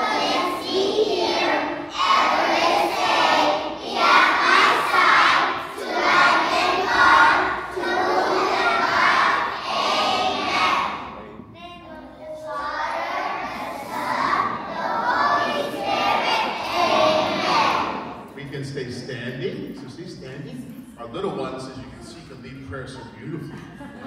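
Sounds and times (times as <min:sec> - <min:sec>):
young children singing: 0:00.0 - 0:18.4.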